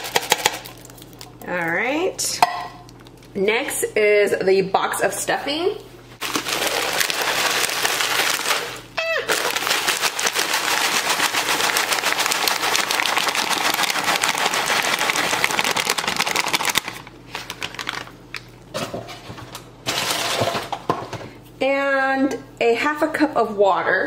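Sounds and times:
bread cubes pouring into cooker: 0:06.2 - 0:18.1.

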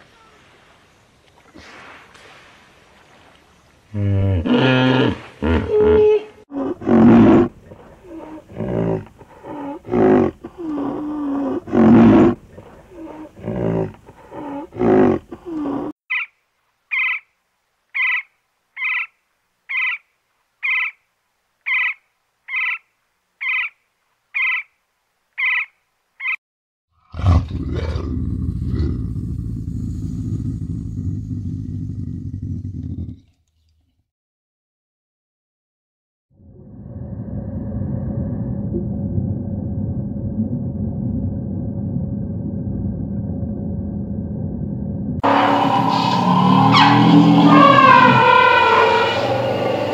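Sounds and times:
woodpecker call notes: 0:16.1 - 0:17.3, 0:17.9 - 0:21.0, 0:21.6 - 0:23.8, 0:24.4 - 0:24.8, 0:25.4 - 0:26.4
serval low rumble: 0:28.1 - 0:33.2, 0:36.4 - 0:49.9
hippopotamus grunting calls: 0:45.2 - 0:49.9.

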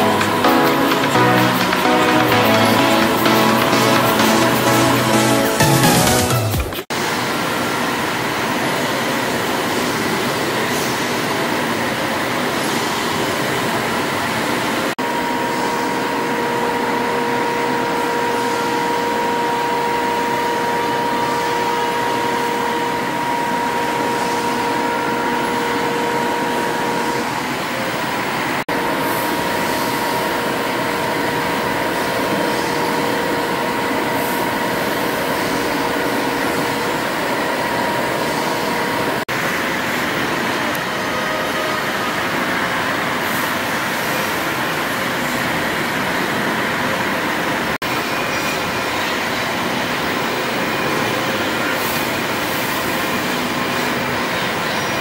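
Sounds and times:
steam engine running: 0:00.0 - 0:06.8.

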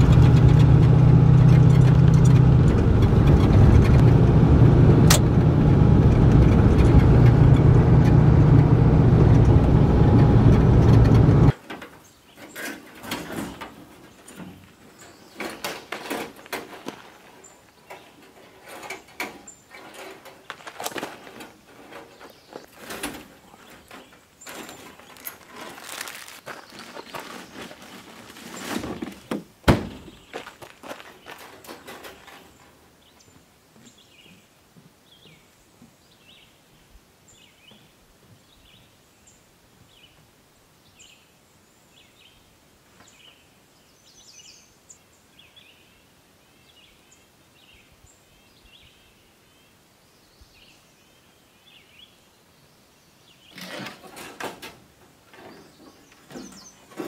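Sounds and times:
gear rustling and knocking: 0:00.0 - 0:11.6, 0:12.6 - 0:29.3
sharp thunk: 0:29.3 - 0:30.1.

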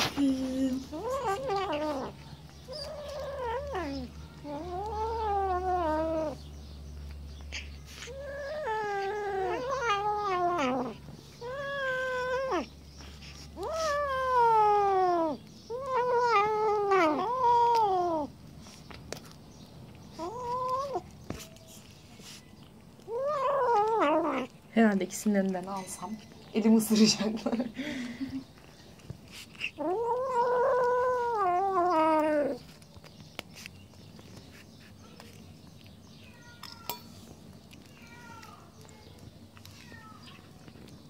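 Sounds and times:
kittens yowling: 0:00.9 - 0:06.4, 0:07.5 - 0:18.3, 0:20.1 - 0:21.5, 0:23.0 - 0:24.5, 0:29.3 - 0:32.8.

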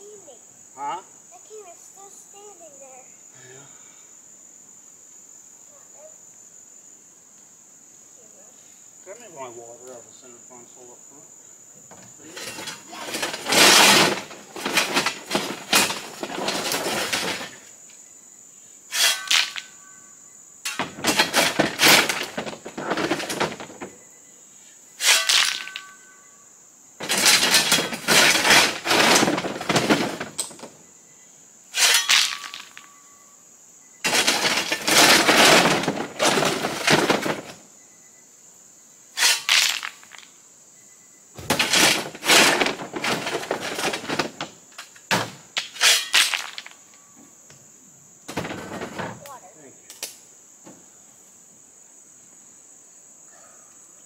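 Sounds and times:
crickets trilling: 0:00.0 - 0:54.0
shovel scraping rocks: 0:12.2 - 0:17.6, 0:18.9 - 0:19.8, 0:20.7 - 0:23.8, 0:25.0 - 0:26.0, 0:27.0 - 0:30.4, 0:31.8 - 0:32.8, 0:34.1 - 0:37.5, 0:39.2 - 0:40.2, 0:41.4 - 0:44.4, 0:45.6 - 0:46.8
stones clattering: 0:25.0 - 0:26.0, 0:31.8 - 0:32.9, 0:39.2 - 0:40.3, 0:45.7 - 0:46.8.

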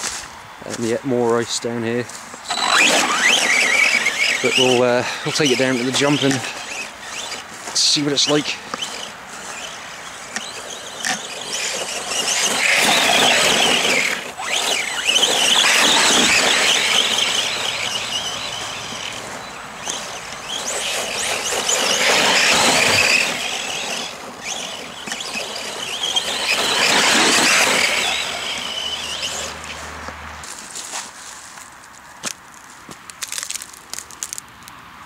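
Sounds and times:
electric motor whining: 0:02.5 - 0:30.1.

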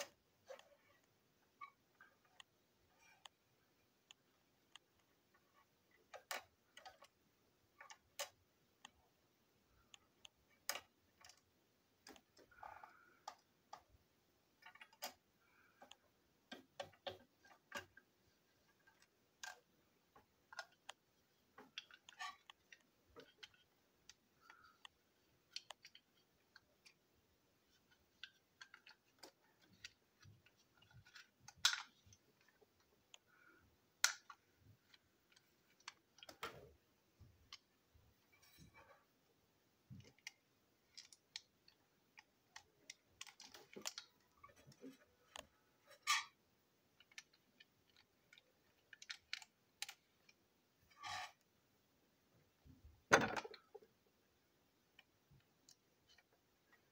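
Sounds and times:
plastic toy parts clicking: 0:04.1 - 0:09.0, 0:09.8 - 0:14.0, 0:14.6 - 0:18.1, 0:18.7 - 0:33.4, 0:34.0 - 0:36.6, 0:39.9 - 0:51.4.

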